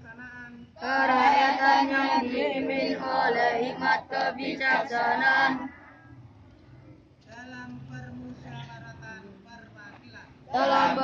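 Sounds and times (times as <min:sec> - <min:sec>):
children chanting in unison: 0:00.8 - 0:05.8, 0:10.5 - 0:11.0.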